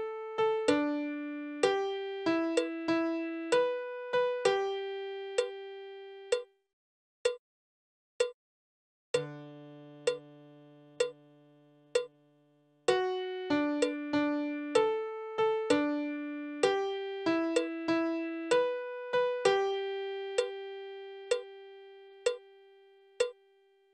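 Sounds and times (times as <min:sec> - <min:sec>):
piano playing slow melody: 0:00.0 - 0:06.4, 0:09.2 - 0:12.3, 0:12.9 - 0:23.3
metronome clicks: 0:00.7 - 0:01.0, 0:01.6 - 0:03.8, 0:04.5 - 0:05.6, 0:06.3 - 0:06.5, 0:09.2 - 0:09.4, 0:10.0 - 0:10.3, 0:11.0 - 0:11.2, 0:12.0 - 0:12.2, 0:12.9 - 0:15.0, 0:15.6 - 0:18.7, 0:19.5 - 0:20.6, 0:21.3 - 0:21.5, 0:22.2 - 0:22.5, 0:23.2 - 0:23.4.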